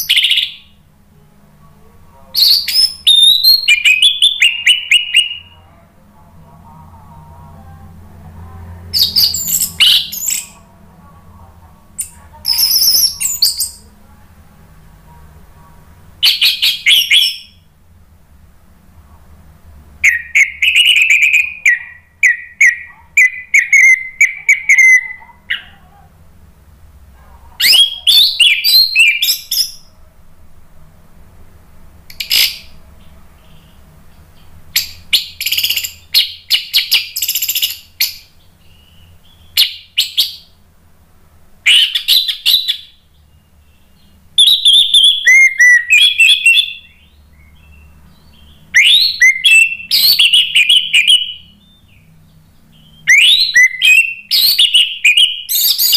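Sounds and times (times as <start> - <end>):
bird singing: 0.0 - 0.8, 2.3 - 5.8, 8.8 - 10.7, 12.0 - 13.9, 16.2 - 17.7, 20.0 - 26.1, 27.6 - 30.0, 32.1 - 40.6, 41.7 - 55.9.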